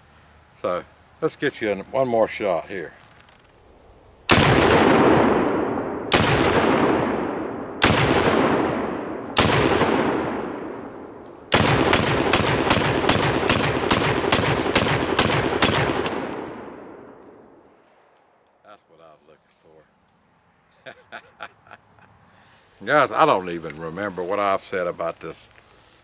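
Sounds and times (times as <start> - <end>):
pistol shots with long echo: 4.3 - 17.6.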